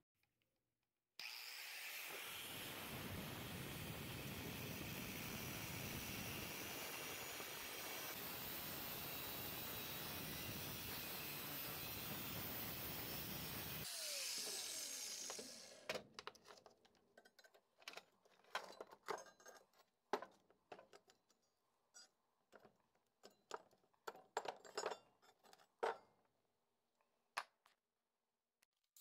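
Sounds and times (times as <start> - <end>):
angle grinder winding down: 1.2 - 16.0.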